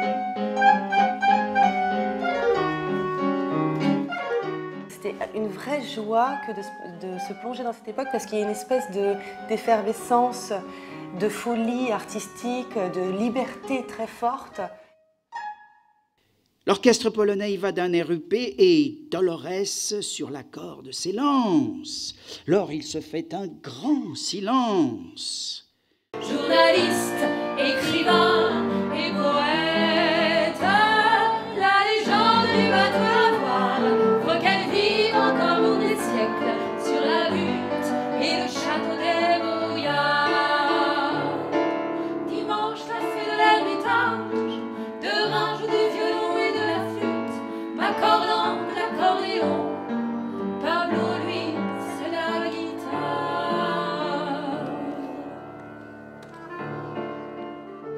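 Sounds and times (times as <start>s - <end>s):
piano accompaniment: 0.0s - 15.8s, 26.2s - 57.9s
women singing with vibrato: 26.2s - 49.8s, 50.6s - 55.6s.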